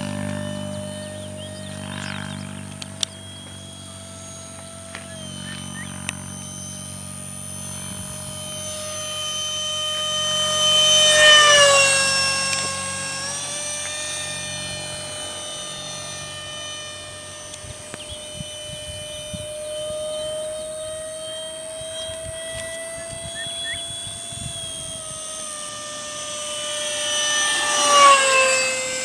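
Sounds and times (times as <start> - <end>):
model jet fan whining fly-by: 0.0 - 29.0.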